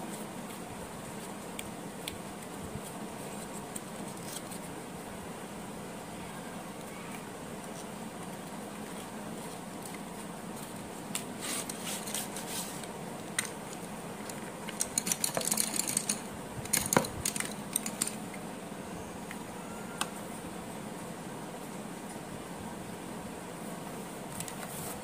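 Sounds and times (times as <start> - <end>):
wooden pencils clacking: 13.2 - 18.4.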